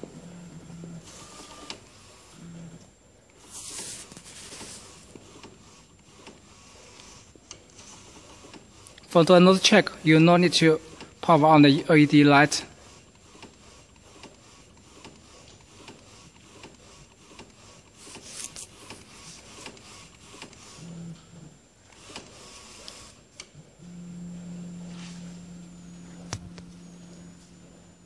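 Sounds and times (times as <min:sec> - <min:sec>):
steady motor hum: 0:23.6 - 0:28.0.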